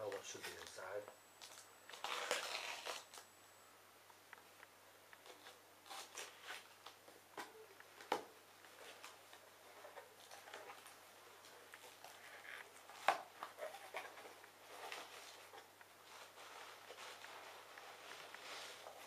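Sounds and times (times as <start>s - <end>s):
packing tape ripping: 1.4s - 3.2s, 5.2s - 7.0s.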